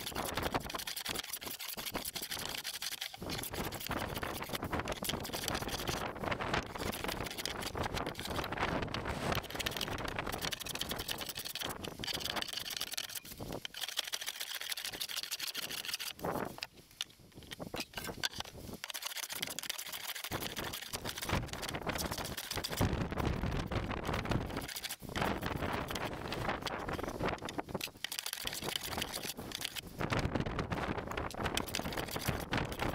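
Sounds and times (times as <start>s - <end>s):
wind rumbling on microphone: 0.0s - 1.1s, 3.2s - 13.7s, 16.2s - 18.8s, 20.3s - 32.9s
hand plane shaving wood: 0.0s - 8.5s, 9.2s - 16.2s, 18.8s - 22.8s, 24.5s - 26.1s, 28.0s - 29.8s, 31.6s - 32.9s.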